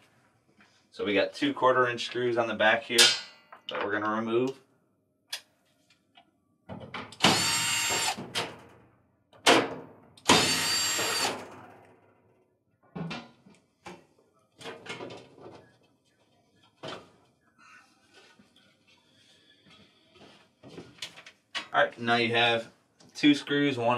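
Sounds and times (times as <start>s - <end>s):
drill clicking and knocking: 7.1s - 8.6s, 10.2s - 11.6s
cordless drill running: 7.2s - 8.2s, 10.3s - 11.4s.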